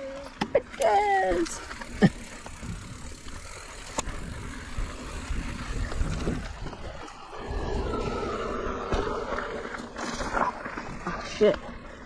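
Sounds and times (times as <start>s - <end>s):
bike tyres rumbling over dirt: 0.0s - 12.0s
wind on microphone: 4.0s - 9.3s.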